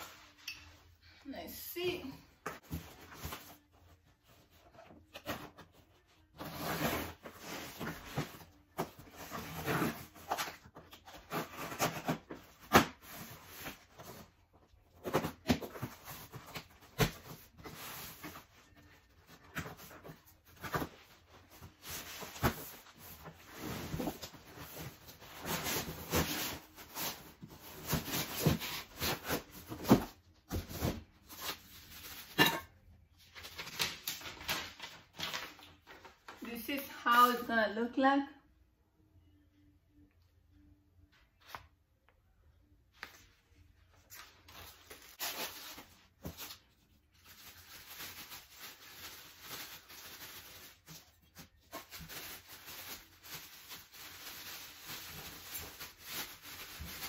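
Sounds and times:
packaging rustling: 0:44.2 - 0:57.0.

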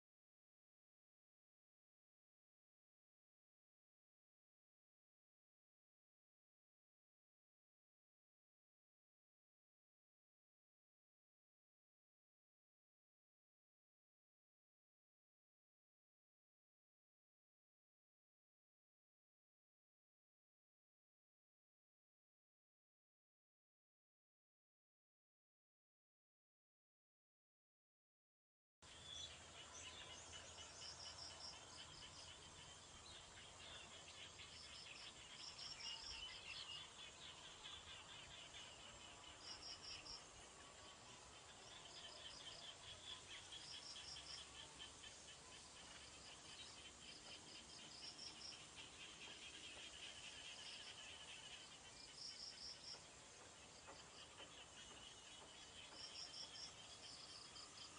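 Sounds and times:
low steady hiss: 0:28.8 - 0:57.9
insect chirping: 0:28.9 - 0:57.9.

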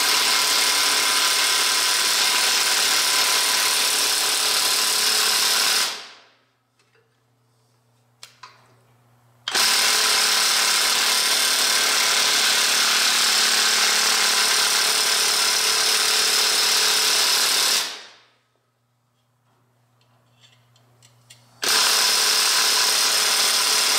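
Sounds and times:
power drill running: 0:00.0 - 0:06.2, 0:09.5 - 0:18.1, 0:21.6 - 0:23.9.

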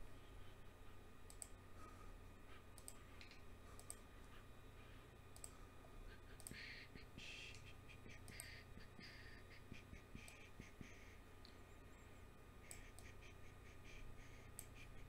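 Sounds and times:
faint clicks: 0:01.3 - 0:01.6, 0:02.7 - 0:04.1, 0:05.3 - 0:05.6, 0:06.4 - 0:06.7, 0:12.7 - 0:13.2.

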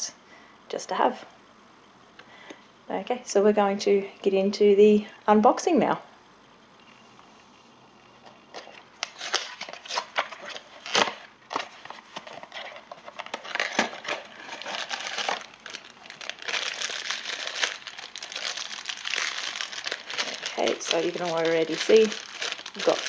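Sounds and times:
foil bag crinkling: 0:08.5 - 0:23.0
cardboard box crackling: 0:09.1 - 0:23.0.

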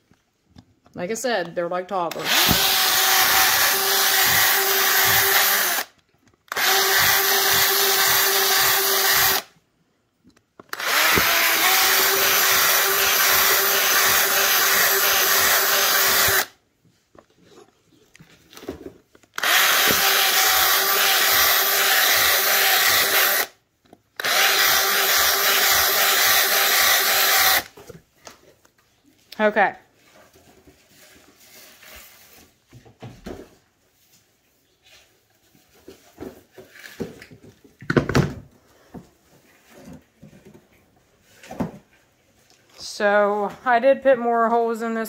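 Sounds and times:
cordless drill drilling into rubber: 0:02.1 - 0:09.5, 0:10.7 - 0:16.6, 0:19.4 - 0:23.6, 0:24.2 - 0:27.7.

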